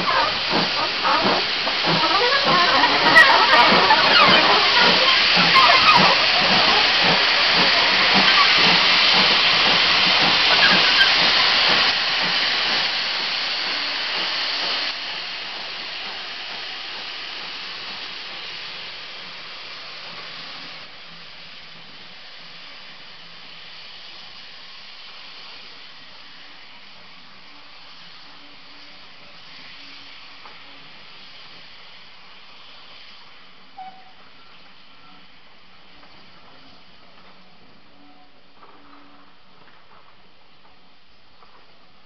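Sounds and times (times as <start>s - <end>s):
steam exhaust beats: 0.0s - 42.0s
steam locomotive hiss: 0.0s - 42.0s.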